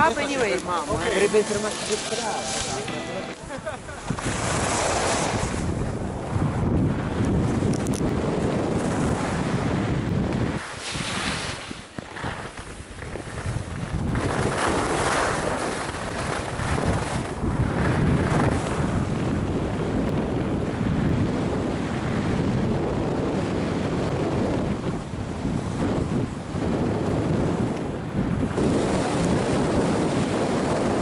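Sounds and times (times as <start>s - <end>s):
skis scraping on packed snow: 0.0s - 5.8s, 10.5s - 18.9s
wind rushing over microphone: 0.0s - 31.0s.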